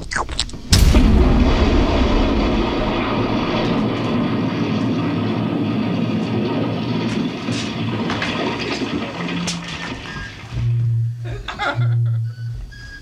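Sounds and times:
explosion low rumbling roar: 0.6s - 10.8s.

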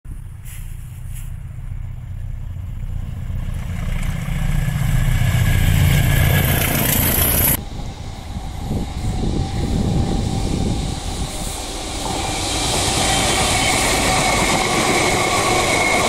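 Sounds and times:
distant diesel engine rumble: 0.1s - 11.3s
diesel locomotive engine rumble: 0.1s - 16.0s
wheel and rail noise: 0.1s - 16.0s.

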